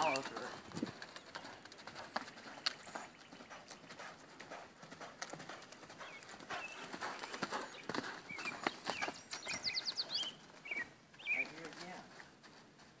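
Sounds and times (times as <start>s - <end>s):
horse hoofbeats on dirt: 0.0s - 13.0s
bird chirping: 1.1s - 4.2s, 5.5s - 11.8s.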